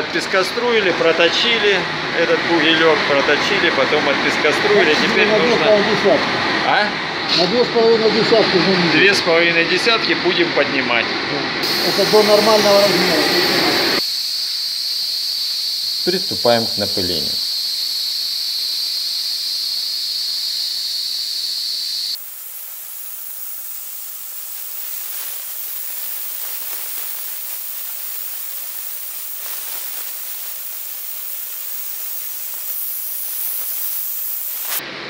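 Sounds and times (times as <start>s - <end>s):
spray gun blasting hiss: 11.6s - 17.4s, 22.0s - 34.8s.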